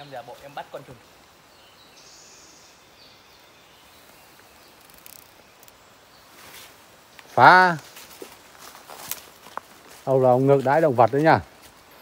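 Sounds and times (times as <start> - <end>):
faint rustles: 3.8 - 10.6.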